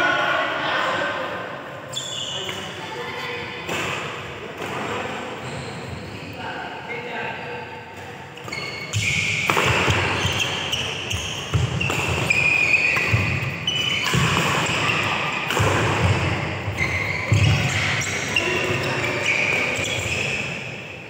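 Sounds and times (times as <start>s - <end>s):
shoe squeaks on court: 1.9s - 2.7s, 5.4s - 6.3s, 8.3s - 15.5s, 16.8s - 20.7s
racket striking shuttlecock: 9.0s - 10.6s, 11.5s - 16.2s.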